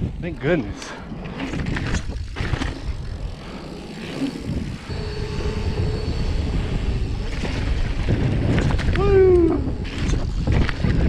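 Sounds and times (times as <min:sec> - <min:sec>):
wind buffeting microphone: 0:00.0 - 0:11.0
bike tyres rolling over gravel: 0:00.4 - 0:11.0
faint steady hum: 0:04.8 - 0:09.8.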